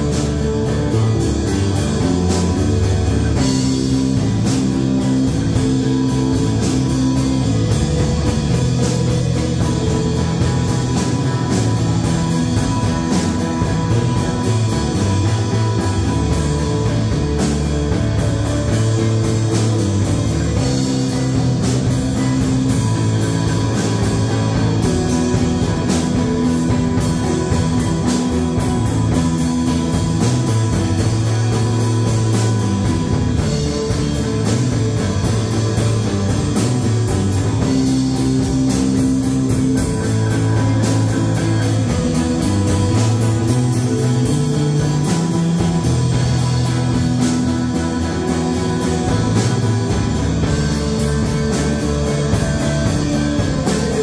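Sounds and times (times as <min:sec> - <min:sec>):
drum kit and cymbals: 0:00.0 - 0:54.0
electric guitar: 0:00.0 - 0:54.0.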